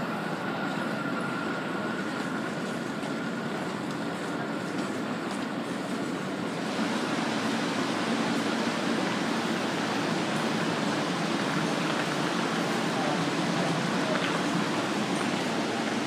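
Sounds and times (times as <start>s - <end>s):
subway train humming at platform: 0.0s - 16.0s
faint voices: 10.4s - 16.0s.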